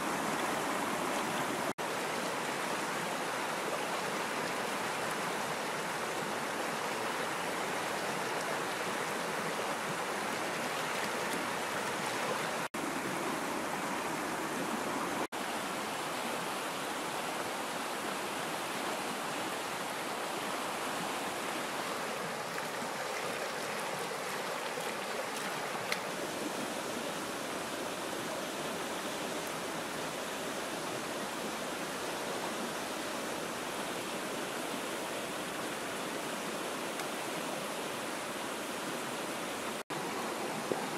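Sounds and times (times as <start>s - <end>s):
river rapids rushing: 0.0s - 40.9s.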